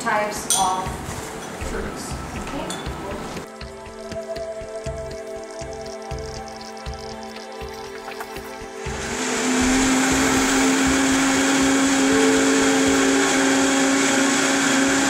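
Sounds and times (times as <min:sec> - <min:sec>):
blender motor running: 0:03.7 - 0:15.0.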